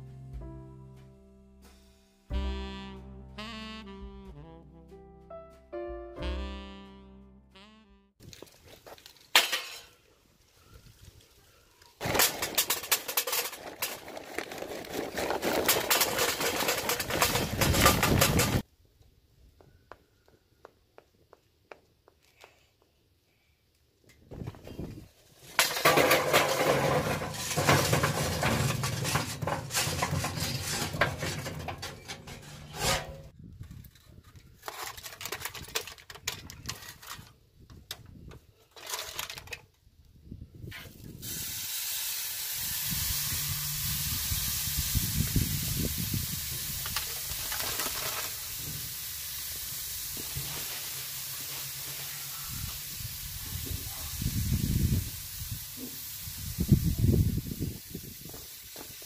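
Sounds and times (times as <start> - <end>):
charcoal scraping and clattering: 8.2 - 10.1, 12.0 - 18.6, 25.3 - 37.4, 38.5 - 39.7, 46.4 - 48.8, 49.8 - 52.4
steak sizzling on grill: 41.2 - 56.6.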